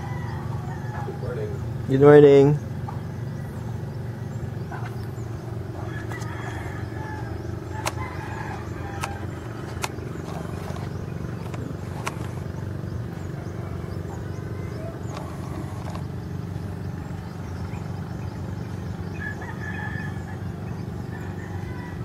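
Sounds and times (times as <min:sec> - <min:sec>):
steady low hum: 0:00.0 - 0:22.0
sharp clicks: 0:07.8 - 0:08.2, 0:08.8 - 0:12.7, 0:15.0 - 0:16.2.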